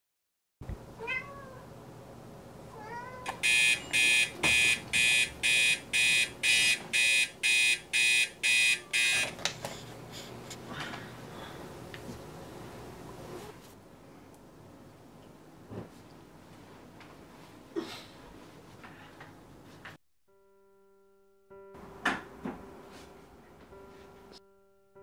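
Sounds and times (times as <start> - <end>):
alarm clock beeping: 3.3 - 9.3.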